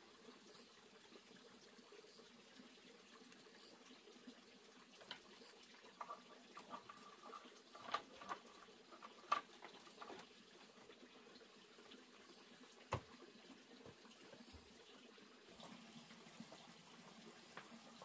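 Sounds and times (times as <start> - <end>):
faint steady hiss: 0.0 - 18.0
cable clicking and squeaking: 5.0 - 10.3.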